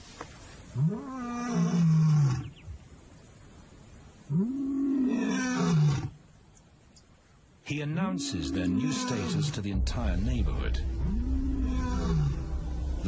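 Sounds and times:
lion roaring: 8.1 - 9.6, 10.8 - 13.0.

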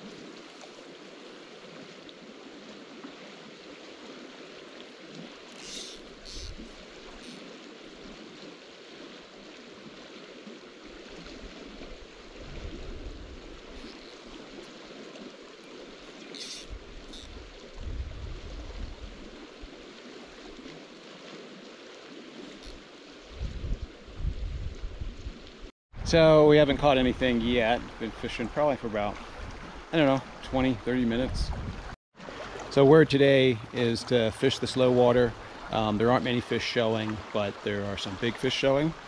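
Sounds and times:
faint ticks: 16.0 - 17.4
fast-running creek: 26.0 - 39.0.

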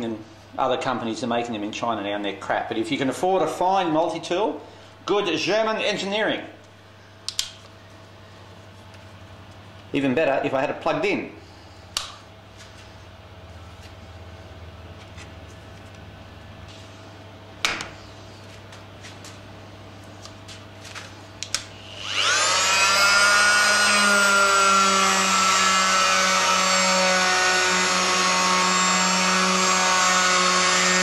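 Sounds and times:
sharp click: 7.3 - 7.6
oscillating multi-tool whine: 21.8 - 31.0.

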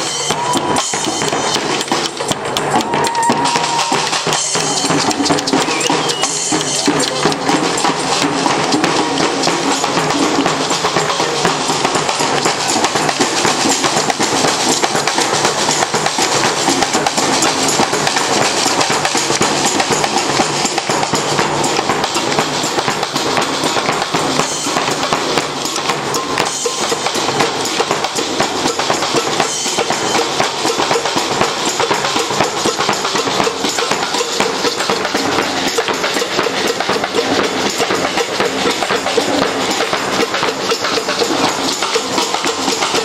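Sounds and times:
fanfare brass band with drums: 0.0 - 43.0.

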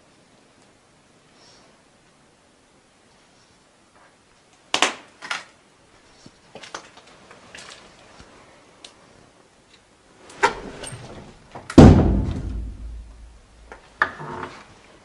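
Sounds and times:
door banging with echo: 11.8 - 13.4.

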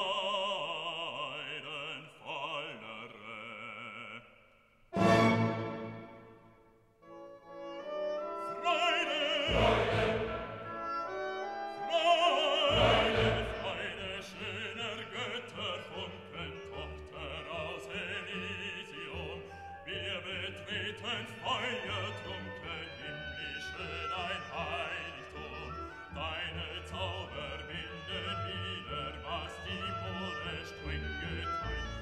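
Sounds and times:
operatic singing voice: 0.0 - 5.8, 8.4 - 10.9, 11.7 - 32.0
orchestral music: 5.0 - 32.0.

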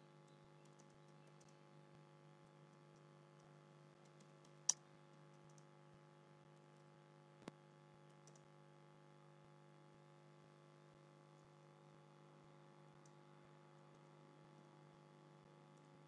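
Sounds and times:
low steady hum: 0.0 - 16.0
faint keyboard typing: 0.6 - 1.6, 2.6 - 5.7, 8.0 - 8.5.

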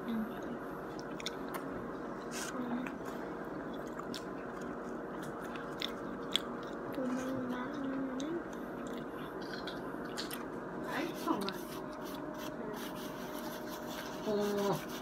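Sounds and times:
person chewing food: 0.8 - 10.6, 11.2 - 12.6
low voice hum: 1.9 - 3.4, 10.8 - 15.0.

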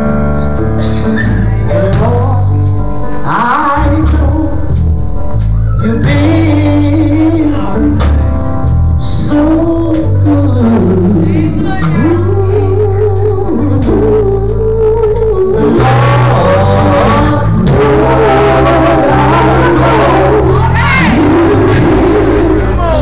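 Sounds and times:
instrumental backing with bass: 0.0 - 23.0
gospel group singing: 9.0 - 23.0
woman leading singing: 11.0 - 13.5, 15.4 - 23.0.

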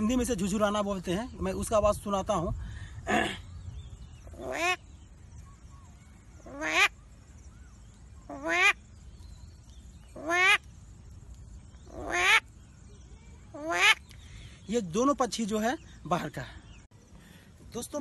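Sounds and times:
man imitating bird calls: 3.0 - 4.8.

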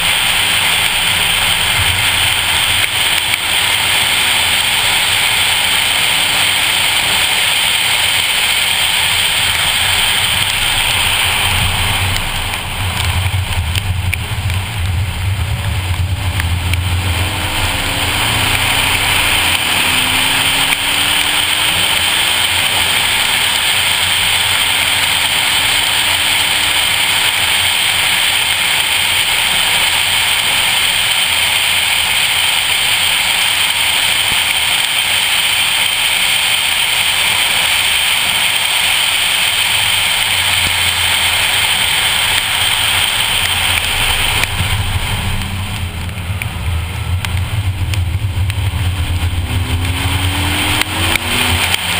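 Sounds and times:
car engine accelerating: 0.0 - 51.9
wind rush: 0.0 - 51.9.

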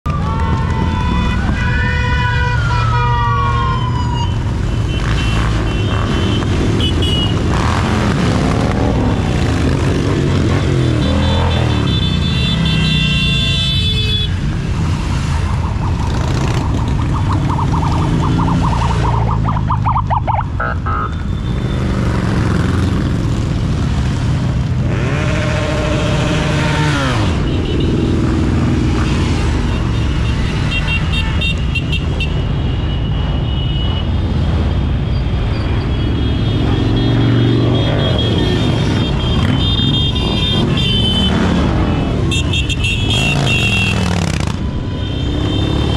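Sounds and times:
siren-like wail: 0.1 - 4.8, 15.0 - 22.0
motorcycle engines revving: 0.1 - 32.6, 34.0 - 45.9
horn toots: 24.8 - 28.0, 36.1 - 45.9.

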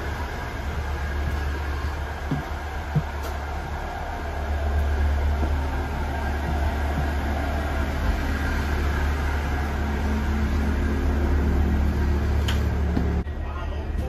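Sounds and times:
train idling low hum: 0.0 - 14.0.

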